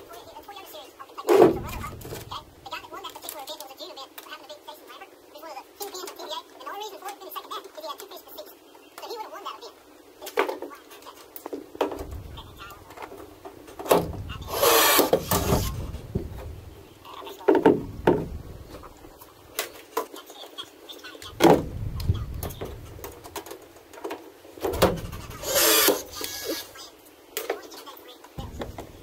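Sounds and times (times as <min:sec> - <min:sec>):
power tool whirring: 0:14.4 - 0:16.1, 0:24.8 - 0:26.8.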